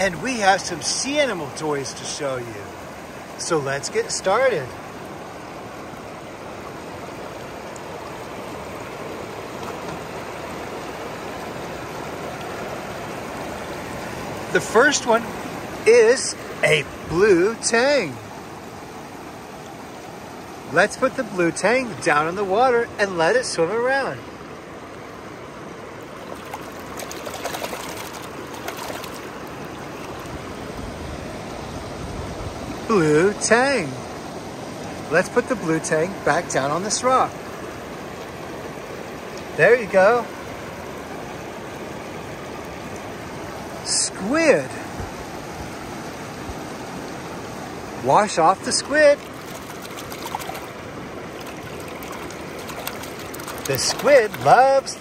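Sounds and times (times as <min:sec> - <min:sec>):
river running over rocks: 0:00.0 - 0:55.0
toy splashing in water: 0:26.4 - 0:29.3, 0:49.2 - 0:54.6.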